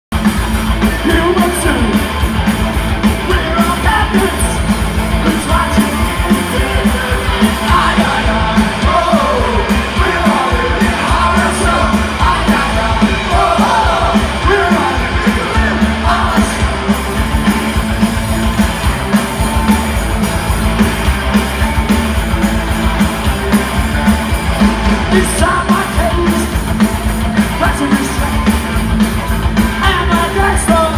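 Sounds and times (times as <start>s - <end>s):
punk rock band playing live: 0.1s - 30.9s
person singing: 25.1s - 26.6s, 29.8s - 30.9s.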